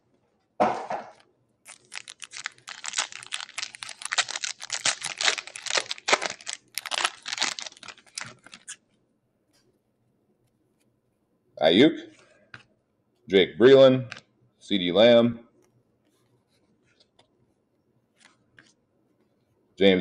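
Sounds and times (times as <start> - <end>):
foil wrapper crackling: 1.6 - 8.8
foil pack tearing rustle: 1.7 - 8.8.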